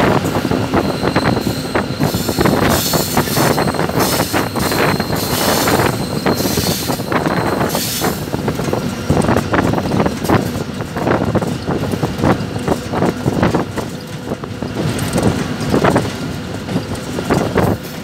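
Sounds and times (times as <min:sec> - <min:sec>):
diesel locomotive running: 0:00.0 - 0:18.0
wheels clattering on rail: 0:00.0 - 0:18.0
wind buffeting microphone: 0:00.0 - 0:18.0.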